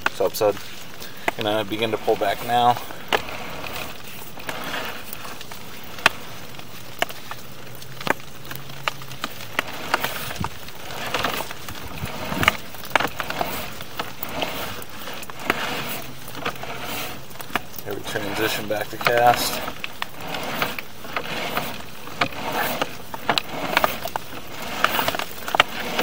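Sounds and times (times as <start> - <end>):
cable scraping in pipe: 0.0 - 26.0
cable clicks and knocks: 8.0 - 26.0.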